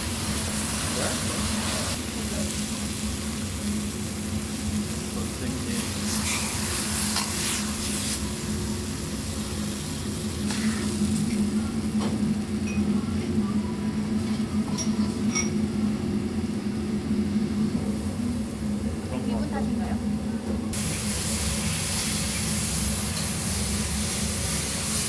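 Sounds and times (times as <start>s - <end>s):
sauce sizzling: 0.0s - 11.9s, 20.7s - 25.0s
steady low hum: 7.7s - 25.0s.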